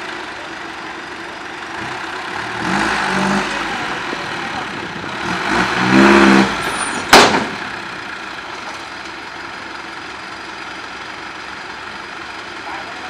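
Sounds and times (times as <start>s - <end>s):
diesel truck engine revving: 0.0s - 8.9s
sharp bang: 6.6s - 7.9s.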